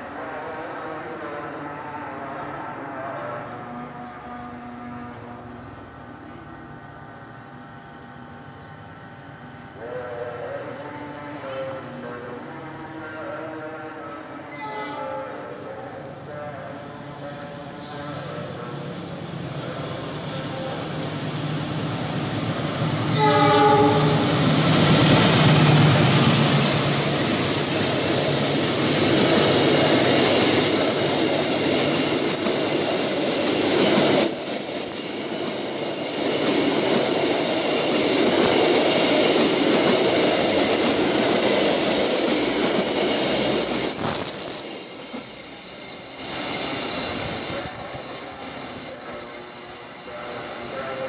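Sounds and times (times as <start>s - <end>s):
train horn blast: 1.7s - 5.9s, 9.8s - 15.6s, 16.3s - 18.7s, 23.0s - 24.5s
train wheels clattering on rails: 21.6s - 49.5s.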